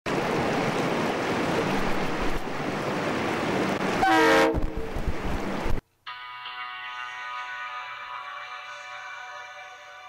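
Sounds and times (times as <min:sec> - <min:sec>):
multi-tone horn blast: 0:04.0 - 0:04.8, 0:06.1 - 0:10.0.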